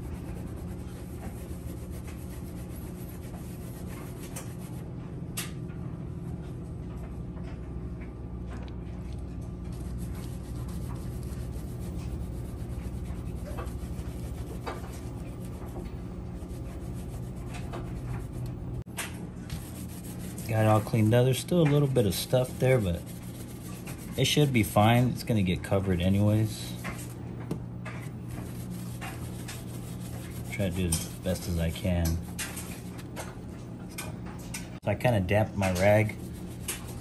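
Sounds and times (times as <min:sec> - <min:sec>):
cloth rag rubbing on car panel: 0:00.0 - 0:04.8, 0:10.0 - 0:18.4, 0:19.6 - 0:21.1, 0:21.9 - 0:24.7, 0:28.3 - 0:31.9
steady low hum: 0:00.0 - 0:37.0.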